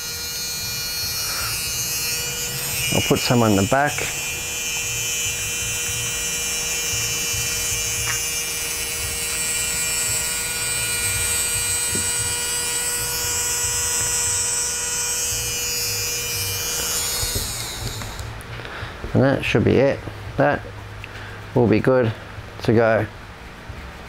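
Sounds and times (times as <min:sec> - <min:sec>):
electric motor whining: 0:00.0 - 0:18.6.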